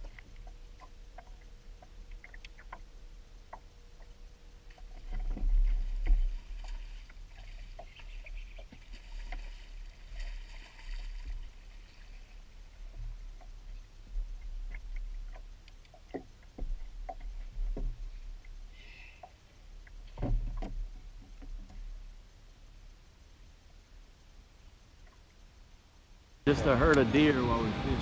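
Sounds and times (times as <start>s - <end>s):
faint steady hum: 0.0s - 28.0s.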